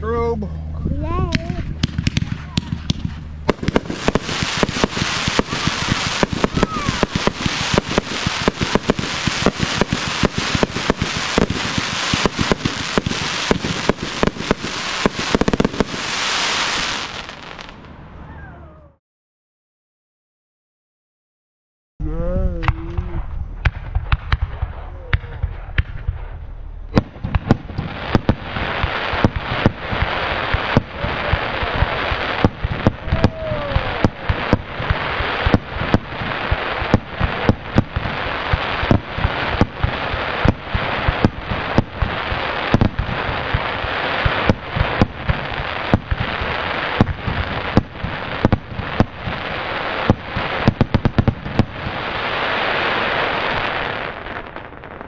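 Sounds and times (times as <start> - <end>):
dense firework crackle: 1.0 - 18.0, 22.5 - 55.0
firework shots and bursts: 1.2 - 17.9, 22.5 - 55.0.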